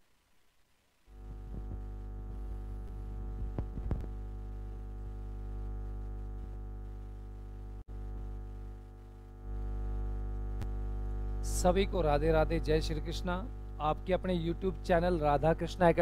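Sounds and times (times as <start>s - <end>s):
electrical mains hum: 0.0s - 16.0s
microphone handling clicks: 1.3s - 2.0s, 2.8s - 4.2s.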